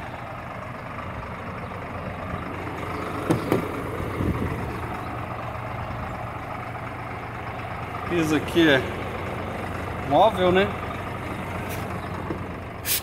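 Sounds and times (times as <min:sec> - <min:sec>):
truck engine idling: 0:00.0 - 0:13.0
cab door opening: 0:03.2 - 0:04.4.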